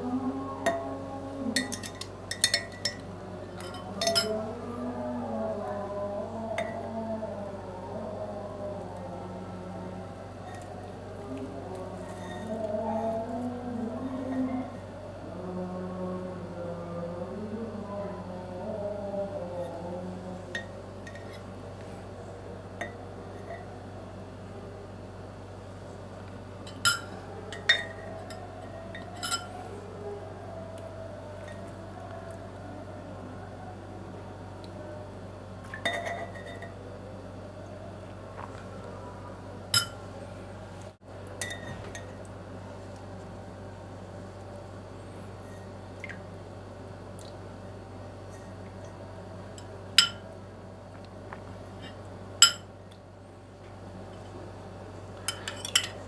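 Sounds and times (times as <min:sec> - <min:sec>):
low steady hum: 0:00.0 - 0:56.0
cutlery clinking against a bowl: 0:01.6 - 0:04.4, 0:26.7 - 0:29.6, 0:39.7 - 0:40.0, 0:41.4 - 0:42.1, 0:50.0 - 0:50.2, 0:51.8 - 0:52.7, 0:55.2 - 0:56.0.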